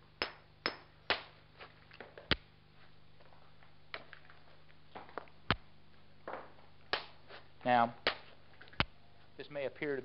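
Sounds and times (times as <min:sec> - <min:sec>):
hammerstone knocking stone: 0:00.2 - 0:01.3.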